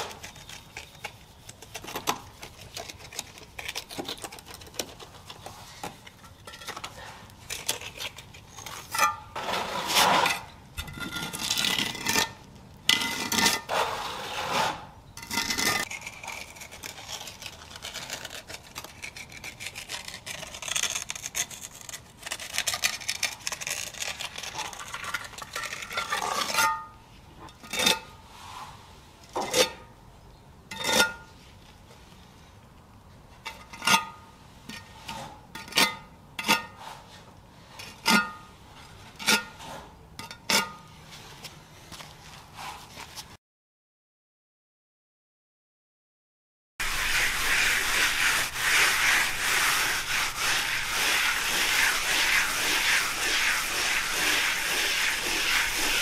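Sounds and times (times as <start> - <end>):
trowel scraping concrete: 0.0 - 28.8, 46.8 - 56.0.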